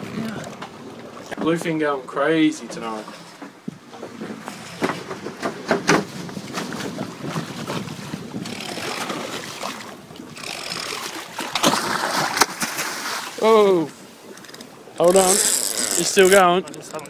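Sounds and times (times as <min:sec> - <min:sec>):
water splashing around boat: 0:00.0 - 0:17.0
wind buffeting microphone: 0:03.5 - 0:12.4.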